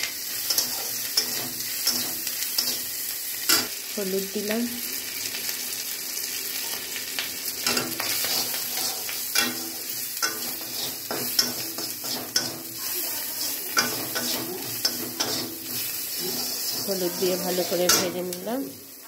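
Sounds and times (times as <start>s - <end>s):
food sizzling in hot oil: 0.0s - 19.0s
metal spatula scraping pan: 7.6s - 18.4s.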